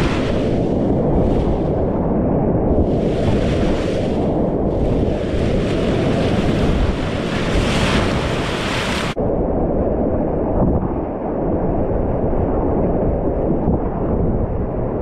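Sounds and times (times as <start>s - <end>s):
whitewater rushing: 0.0s - 0.6s, 2.9s - 9.2s
waves washing over microphone: 0.0s - 9.2s.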